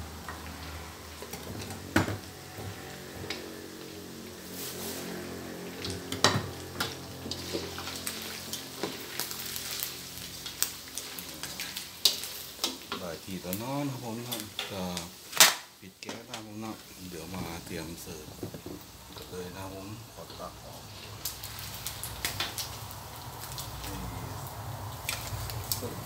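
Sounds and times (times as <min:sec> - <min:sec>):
fish sizzling in hot oil: 0:00.0 - 0:26.0
metal spatula scraping wok: 0:04.4 - 0:13.0.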